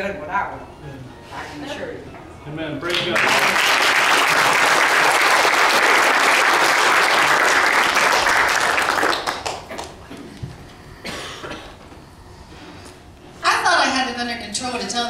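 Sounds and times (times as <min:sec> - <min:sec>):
congregation applauding: 0:02.9 - 0:10.1.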